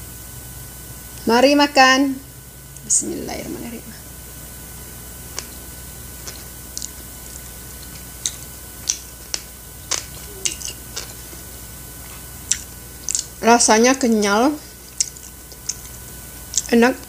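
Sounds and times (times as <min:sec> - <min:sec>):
wet chewing clicks and smacks: 0:05.3 - 0:13.4, 0:14.0 - 0:16.8.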